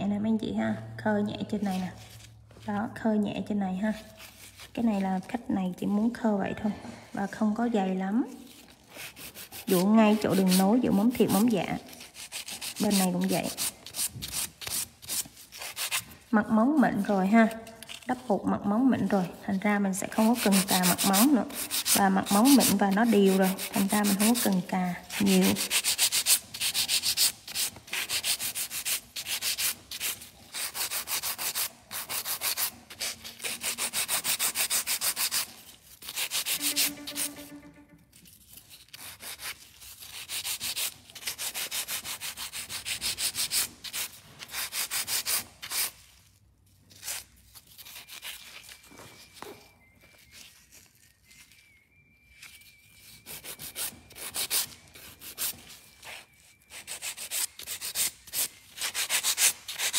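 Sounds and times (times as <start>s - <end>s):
nail file scraping: 8.5s - 16.2s, 20.0s - 46.0s, 47.0s - 49.4s, 52.4s - 59.9s.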